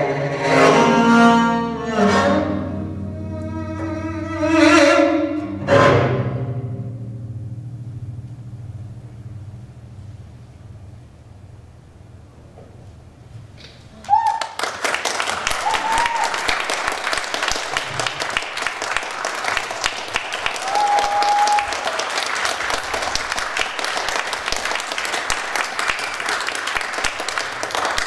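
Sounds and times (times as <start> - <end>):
high calls from crowd: 13.9 - 14.6, 15.4 - 16.8, 20.4 - 22.5
audience applauding: 14.0 - 28.0.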